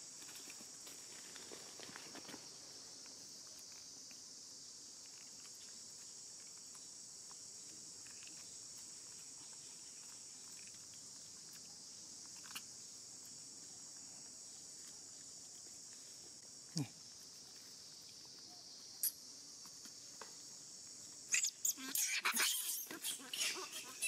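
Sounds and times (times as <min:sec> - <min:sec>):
high-pitched insect chorus: 0:00.0 - 0:24.0.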